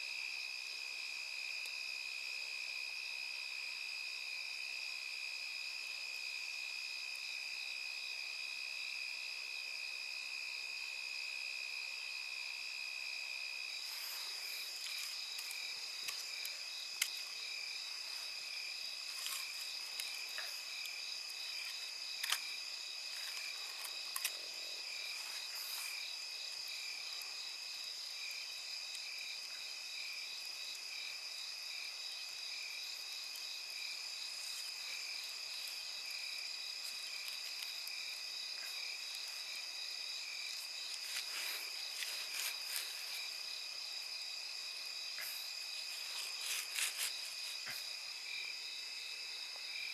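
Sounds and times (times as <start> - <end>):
insects chirping: 0.0 - 49.9
campfire popping and crackling: 13.8 - 30.8, 32.9 - 39.6.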